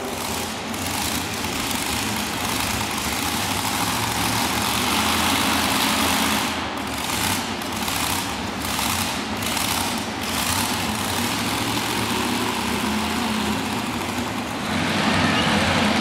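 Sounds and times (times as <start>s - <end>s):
tractor engine idling: 0.0s - 16.0s.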